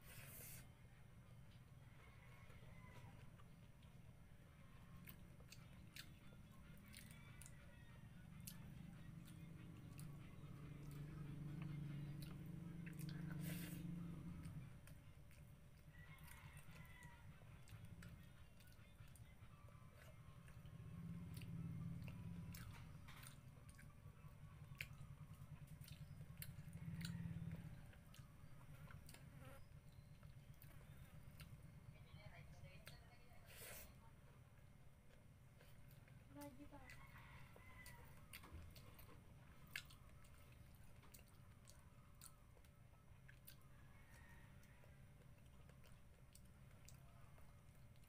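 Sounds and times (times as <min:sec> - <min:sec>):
low steady hum: 0:00.0 - 0:48.0
person chewing: 0:04.7 - 0:16.7, 0:17.5 - 0:20.7, 0:21.3 - 0:24.0, 0:24.7 - 0:27.2, 0:27.9 - 0:31.7, 0:37.8 - 0:48.0.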